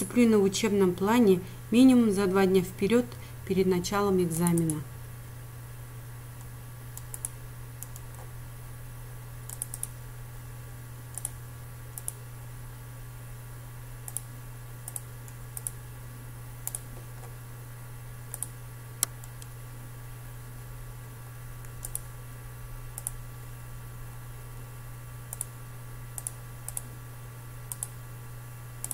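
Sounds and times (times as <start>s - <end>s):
steady low hum: 0.0s - 28.9s
computer mouse clicking: 6.4s - 8.3s, 9.5s - 10.0s, 11.1s - 11.4s, 12.0s - 12.2s, 14.0s - 15.8s, 16.6s - 17.3s, 18.3s - 19.5s, 21.6s - 22.1s, 23.0s - 23.2s, 25.3s - 25.6s, 26.2s - 26.9s, 27.7s - 28.0s.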